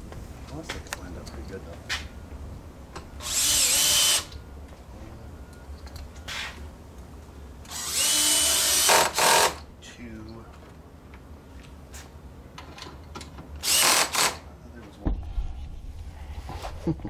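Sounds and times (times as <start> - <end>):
cordless drill motor whine: 3.2 - 4.4, 7.7 - 9.6, 13.6 - 14.4.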